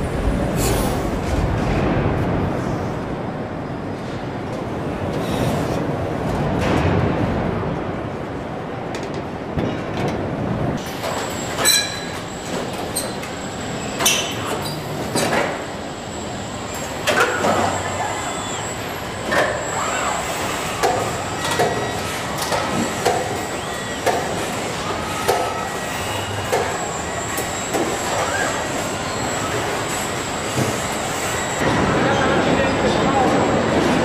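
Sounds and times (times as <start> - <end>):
steady mechanical hum: 0.0 - 34.0
robot motors whining: 15.6 - 31.6.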